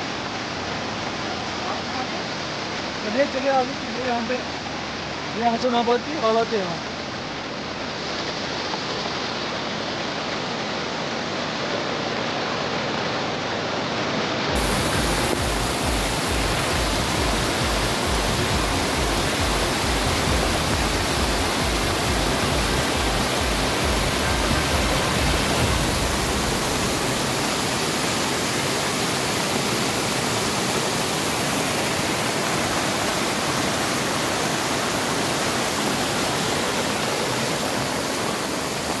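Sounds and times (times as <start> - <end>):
floodwater rushing: 0.0 - 39.0
low fluttering rumble: 14.6 - 27.6.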